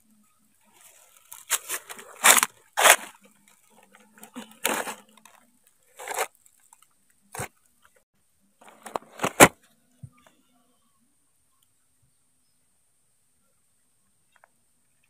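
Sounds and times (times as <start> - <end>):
palm leaves rustling: 0.6 - 7.5.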